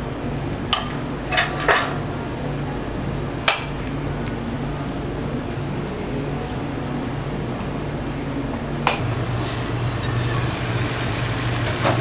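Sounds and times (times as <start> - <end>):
utensils clinking against dishes: 0.7 - 2.0.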